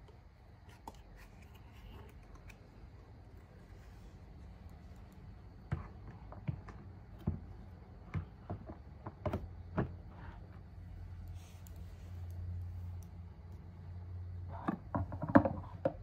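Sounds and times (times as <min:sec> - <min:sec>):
hollow plastic knocks: 0:14.6 - 0:16.0.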